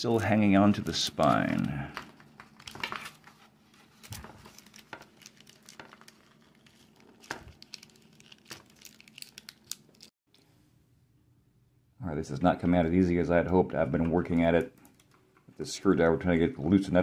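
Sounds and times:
paper crinkling and rustling: 0.7 - 10.1.

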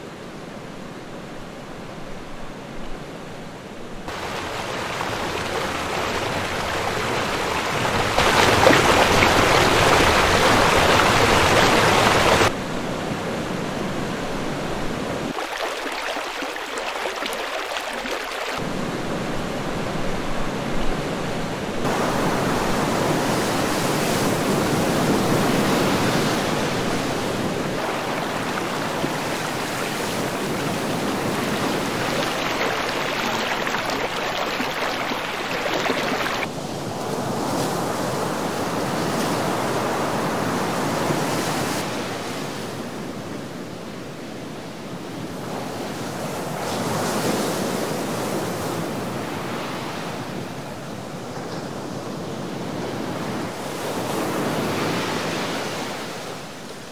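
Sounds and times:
waves breaking on shore: 2.8 - 43.3.

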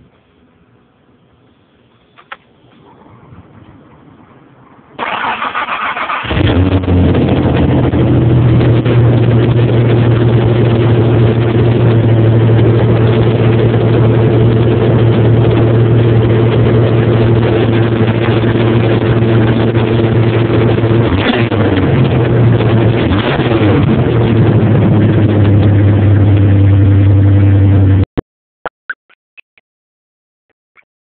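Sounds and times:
car engine idling: 1.8 - 28.0
car starter cranking: 4.9 - 7.2.

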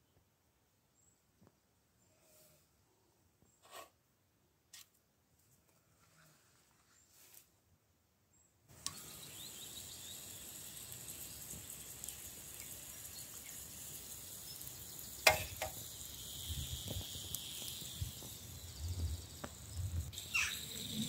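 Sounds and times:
onion sizzling in a pot: 8.8 - 21.0
small knocks: 15.2 - 15.8.

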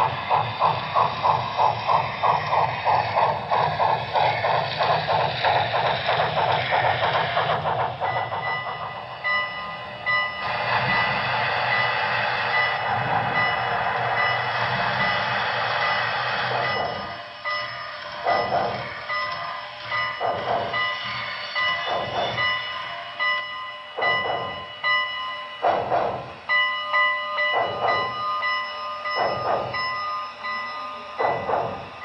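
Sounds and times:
steam exhaust chuffs: 0.0 - 25.0, 25.6 - 26.6, 29.0 - 32.0
steady high tones: 0.0 - 32.0
rush of steam: 10.4 - 17.4.

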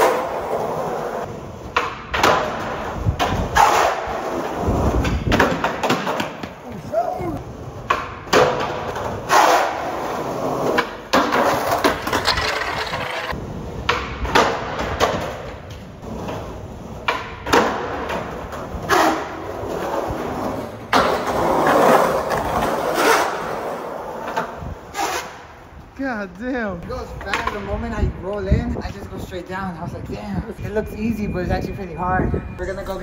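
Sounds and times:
skateboard wheels rolling on pavement: 0.0 - 30.0
skateboard clacking on ground: 1.6 - 7.0, 7.8 - 23.6, 27.1 - 27.8.

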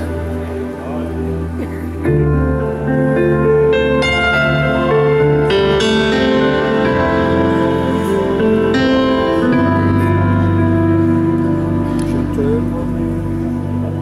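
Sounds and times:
keyboard chords: 0.0 - 14.0
live band playing a slow ballad: 0.0 - 14.0.

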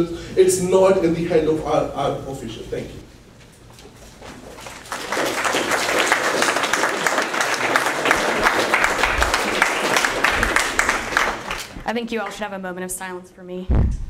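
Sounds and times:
audience applauding: 4.3 - 12.4.

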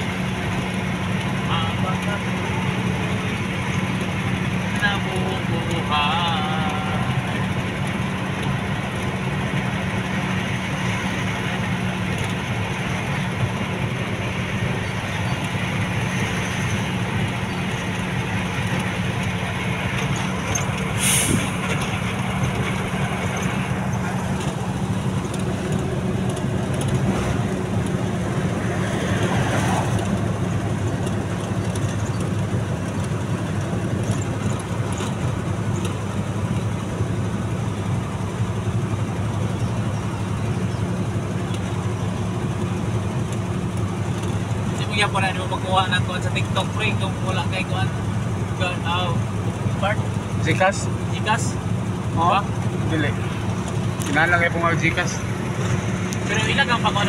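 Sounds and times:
road and wind noise: 0.0 - 57.0
vehicle engine running: 0.0 - 57.0
brief hiss: 21.0 - 21.6.

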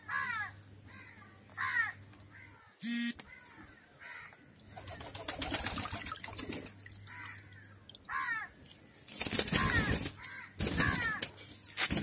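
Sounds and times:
water splashing in a plastic tub: 4.4 - 10.2.

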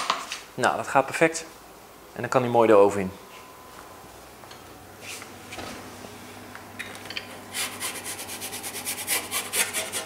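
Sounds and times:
metal pizza peel scraping: 7.5 - 10.0.

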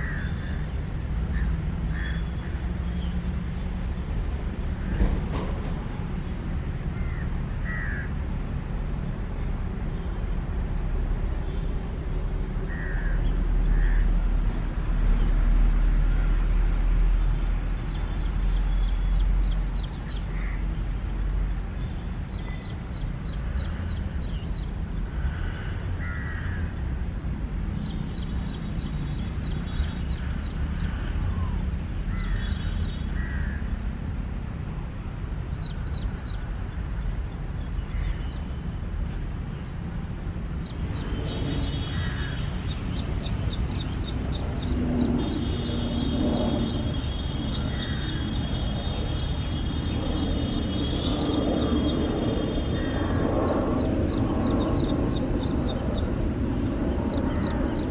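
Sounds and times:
birds chirping: 11.3 - 34.6, 35.3 - 57.9.

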